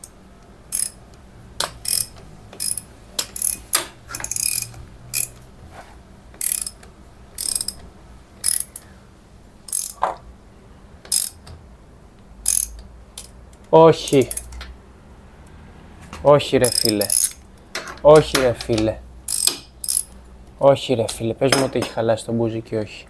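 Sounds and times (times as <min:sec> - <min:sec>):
ratchet wrench clicking: 0:00.7 - 0:01.0, 0:01.6 - 0:05.4, 0:06.4 - 0:08.9, 0:09.7 - 0:10.1, 0:11.1 - 0:11.5, 0:12.4 - 0:14.6, 0:16.6 - 0:20.2.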